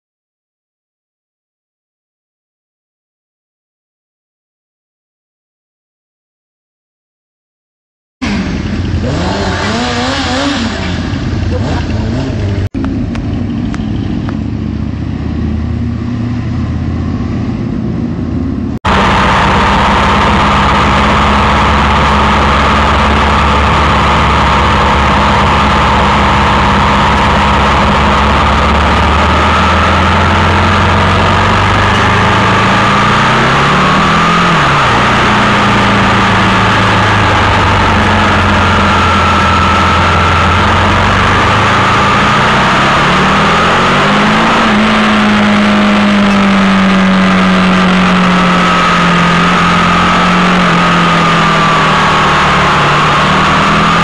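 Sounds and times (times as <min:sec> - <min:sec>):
motorcycle engine running: 0:08.2 - 0:54.0
rushing noise: 0:14.4 - 0:54.0.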